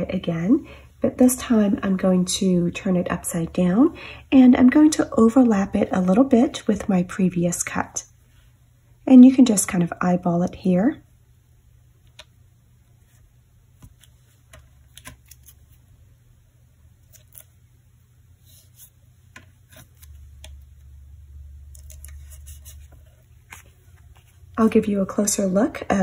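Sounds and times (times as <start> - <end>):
low steady hum: 0.0 - 26.0
faint clicks and rustles of handling: 12.0 - 15.9, 21.6 - 24.8.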